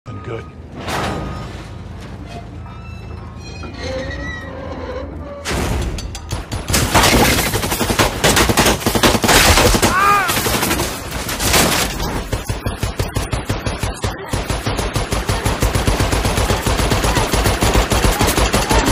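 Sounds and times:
automatic gunfire bursts: 0:12.1 - 0:18.9.

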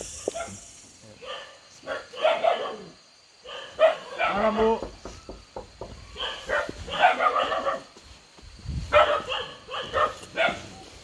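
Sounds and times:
dog barking: 0:00.2 - 0:00.6, 0:01.2 - 0:04.7, 0:06.1 - 0:07.9, 0:08.9 - 0:10.8.

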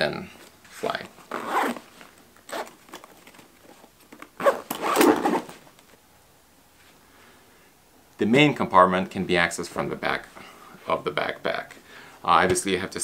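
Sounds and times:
zipper being pulled: 0:01.3 - 0:01.9, 0:02.5 - 0:02.8, 0:04.3 - 0:05.6.

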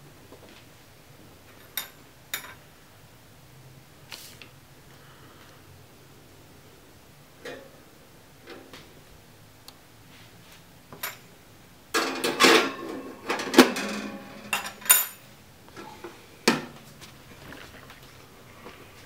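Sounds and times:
metal oven rack clattering: 0:12.0 - 0:15.2.

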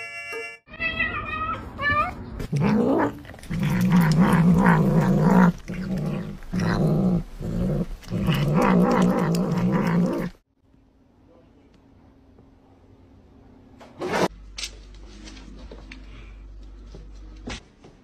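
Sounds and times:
cat growling: 0:02.4 - 0:10.4.

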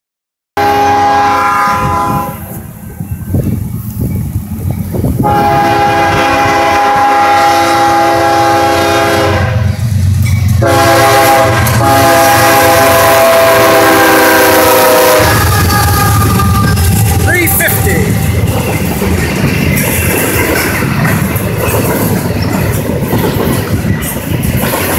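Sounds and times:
locomotive air horn blasts: 0:00.6 - 0:02.6, 0:05.2 - 0:09.8, 0:10.6 - 0:17.6.

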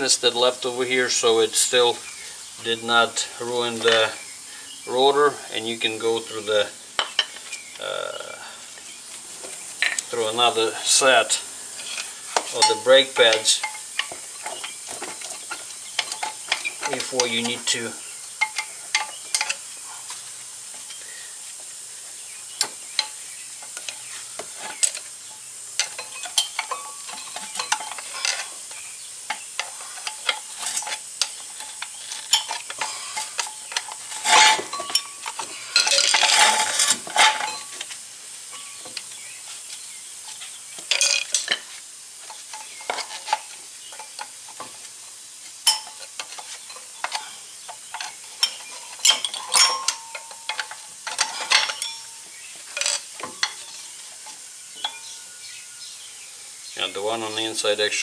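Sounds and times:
metal brake parts clinking: 0:25.8 - 0:37.9, 0:40.9 - 0:44.2, 0:45.6 - 0:53.7.

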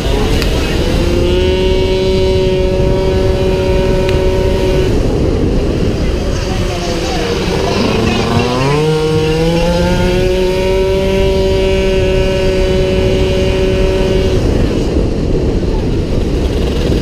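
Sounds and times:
scooter engine revving: 0:00.0 - 0:17.0
wind rushing over microphone: 0:00.0 - 0:17.0.

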